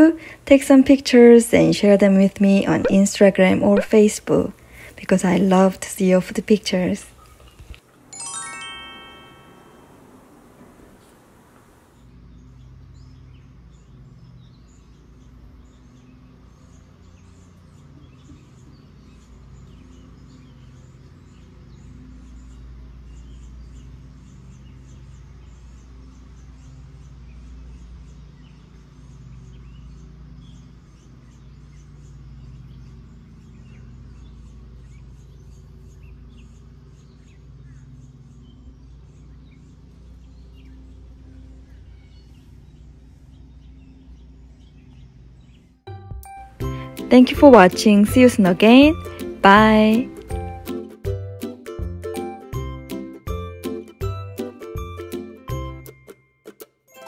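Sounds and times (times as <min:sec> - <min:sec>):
birds chirping: 0:00.0 - 0:51.6
steady low hum: 0:09.3 - 0:45.9.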